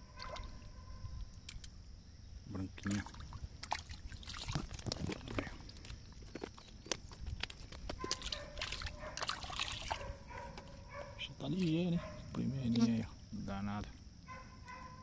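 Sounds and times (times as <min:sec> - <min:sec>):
water splashing at shoreline: 0:02.8 - 0:05.1, 0:08.0 - 0:10.2.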